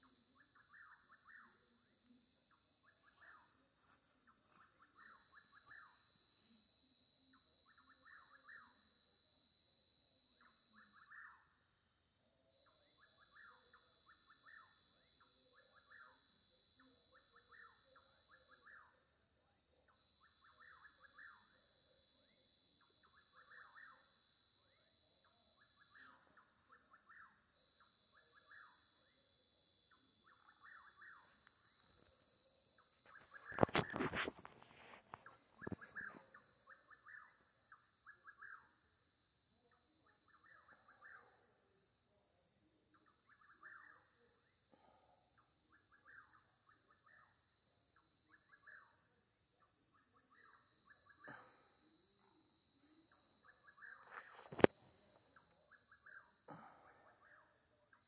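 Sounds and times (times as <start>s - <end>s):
insect trill: 0.0s - 58.0s
short chirping calls: 30.3s - 38.7s, 52.9s - 57.4s.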